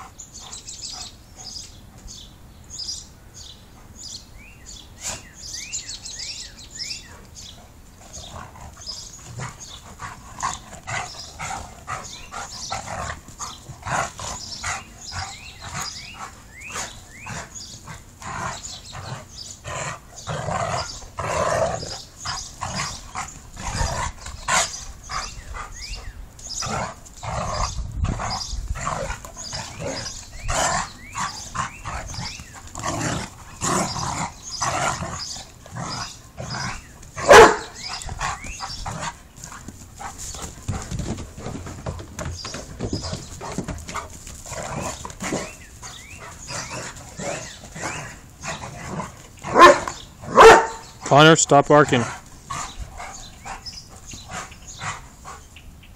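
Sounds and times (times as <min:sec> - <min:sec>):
dogs growling and snarling: 0:07.1 - 0:51.1, 0:51.9 - 0:55.5
dog barking: 0:37.2 - 0:37.8, 0:49.5 - 0:50.9.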